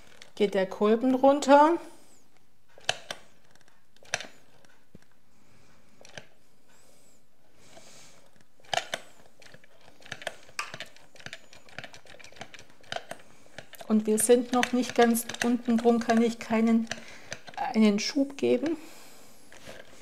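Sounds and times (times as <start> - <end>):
plastic batter dispenser clicks: 12.4 - 17.6.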